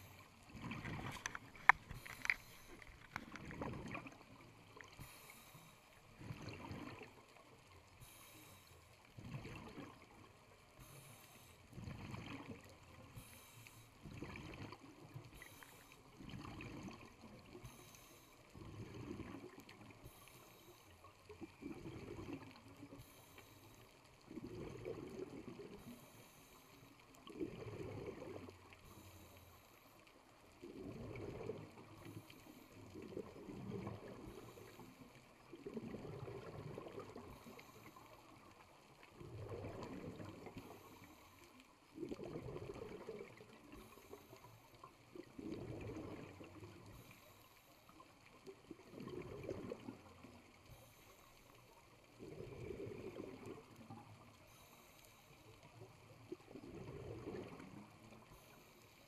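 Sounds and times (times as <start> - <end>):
bubbling exhale underwater: 0.0 - 5.1, 6.1 - 7.4, 9.2 - 10.2, 11.7 - 13.2, 14.0 - 17.7, 18.5 - 20.1, 21.3 - 22.7, 24.3 - 26.0, 27.2 - 28.6, 30.6 - 32.1, 32.9 - 34.7, 35.4 - 37.8, 39.1 - 40.9, 41.9 - 44.1, 45.1 - 46.9, 48.6 - 50.4, 52.2 - 54.6, 56.2 - 58.5
regulator hiss on inhale: 1.1 - 3.2, 4.8 - 6.0, 8.0 - 9.0, 10.8 - 11.7, 13.0 - 14.0, 15.3 - 16.1, 17.5 - 19.1, 19.9 - 21.4, 22.8 - 24.1, 25.7 - 27.2, 28.7 - 30.3, 31.8 - 32.9, 34.0 - 35.3, 37.2 - 38.6, 40.5 - 41.8, 43.6 - 45.0, 46.8 - 48.1, 50.6 - 51.8, 53.8 - 55.8, 58.2 - 59.0.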